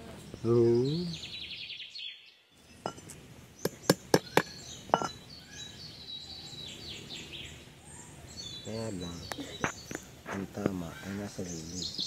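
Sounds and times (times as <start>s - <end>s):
birds chirping: 0.0s - 12.0s
sharp knocks: 2.9s - 5.2s.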